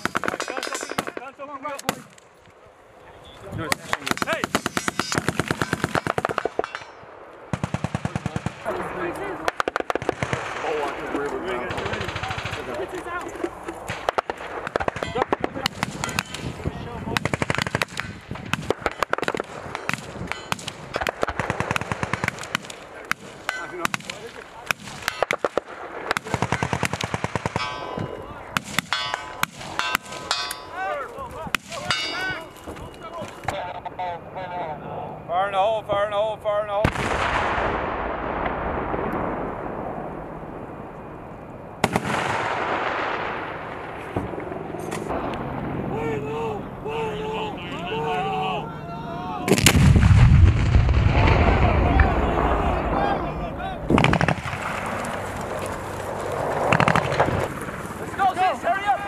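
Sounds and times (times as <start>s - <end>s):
rapid overlapping gunfire: 0.0s - 2.2s, 3.6s - 30.5s, 53.9s - 59.0s
sharp double crack blast: 17.1s - 27.9s, 36.8s - 40.2s, 41.8s - 45.8s, 49.5s - 53.1s, 53.8s - 55.6s, 56.4s - 58.2s
explosion rumble echoing: 36.8s - 40.9s, 49.5s - 58.3s.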